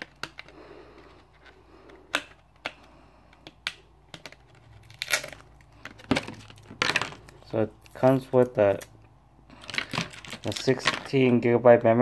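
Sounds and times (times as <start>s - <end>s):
plastic packaging crinkling: 4.1s - 8.8s, 9.5s - 11.5s.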